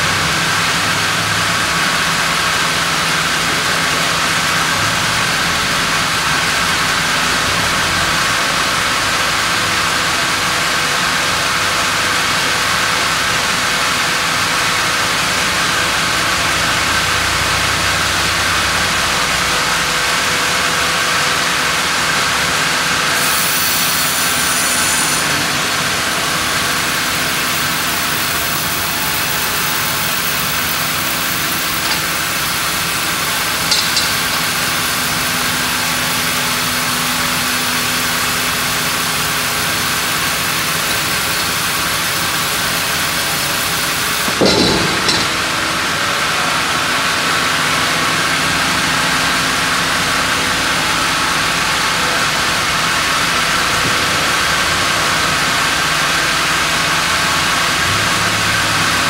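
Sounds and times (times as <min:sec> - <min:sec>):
band saw mill drone: 0:22.0 - 0:46.8.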